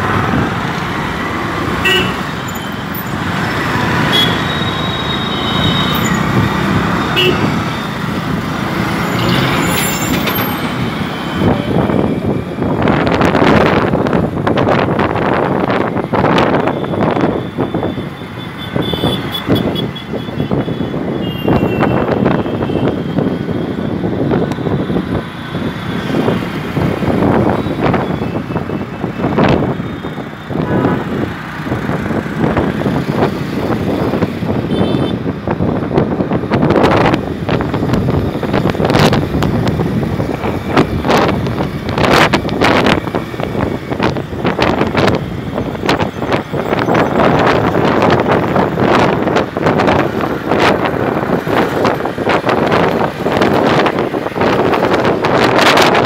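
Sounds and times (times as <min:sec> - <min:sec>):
road traffic engine and tyre noise: 0:00.0 - 0:56.0
wind buffeting microphone: 0:21.8 - 0:56.0.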